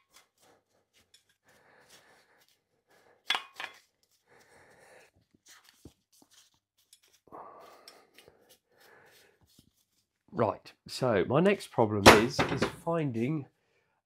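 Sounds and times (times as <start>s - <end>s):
rustling rubbing noise: 5.2s - 10.2s.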